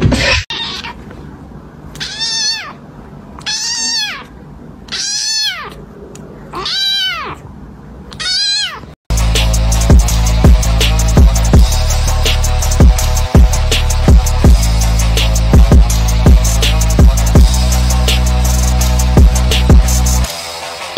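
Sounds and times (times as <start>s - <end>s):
kitten meowing: 2.0s - 2.8s, 3.4s - 5.8s, 6.5s - 7.4s, 8.1s - 8.9s
loud music with heavy beat: 9.1s - 20.9s.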